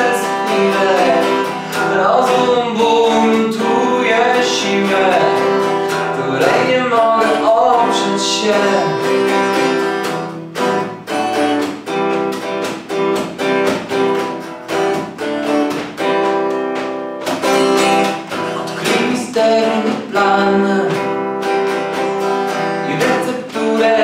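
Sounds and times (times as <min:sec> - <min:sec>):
person singing: 0:00.0 - 0:10.6, 0:17.9 - 0:24.0
guitar strumming: 0:00.0 - 0:24.0.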